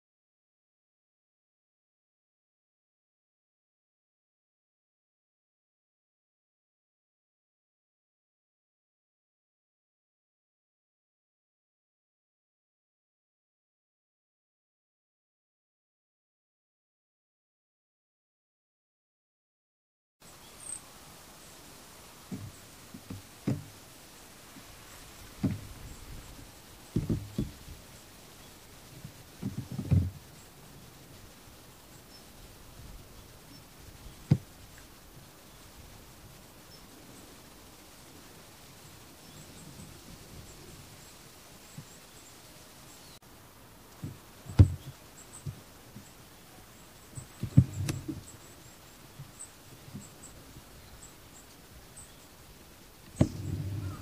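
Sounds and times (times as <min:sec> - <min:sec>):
distant birds chirping: 0:20.2 - 0:30.6, 0:43.8 - 0:54.0
faint steady hiss: 0:20.2 - 0:54.0
dull low knocks: 0:25.3 - 0:27.7, 0:47.4 - 0:48.3, 0:53.1 - 0:54.0
dull low thumps: 0:53.1 - 0:54.0.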